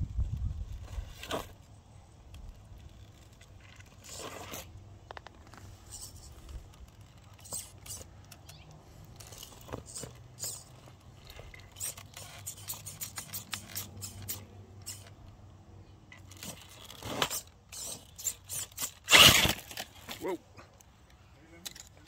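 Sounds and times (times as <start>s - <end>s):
tyres scraping on rocks: 0.7s - 1.7s, 2.7s - 15.2s, 16.1s - 20.4s.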